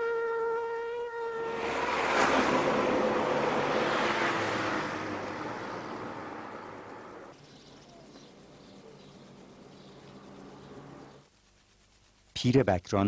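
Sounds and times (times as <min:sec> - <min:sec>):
vehicle rushing past: 0:01.3 - 0:07.4.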